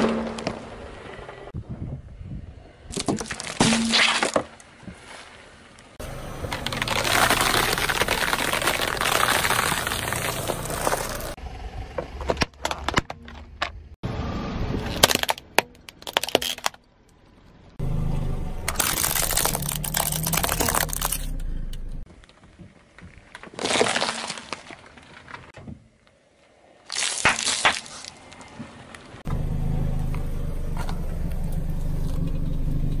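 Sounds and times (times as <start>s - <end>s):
car engine running low: 6.0s - 12.6s, 17.8s - 22.1s, 29.2s - 33.0s
tyre crushing plastic and candy: 6.4s - 11.4s, 14.9s - 16.8s, 18.7s - 21.3s, 22.2s - 25.6s.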